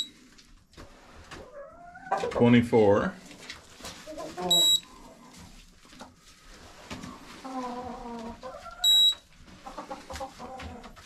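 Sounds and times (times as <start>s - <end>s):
chickens calling and clucking: 0.8s - 2.6s, 3.5s - 11.0s
short high electronic beep: 8.9s - 9.2s.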